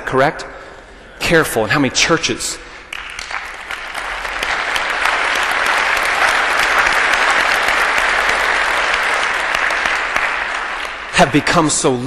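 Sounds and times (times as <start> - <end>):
audience applauding: 2.9 - 11.7.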